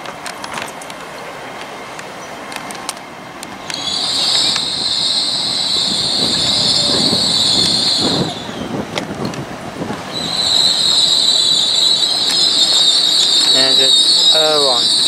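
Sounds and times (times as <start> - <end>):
train rumble: 0.0 - 15.0
high-pitched brake squeal: 3.6 - 8.8, 10.1 - 15.0.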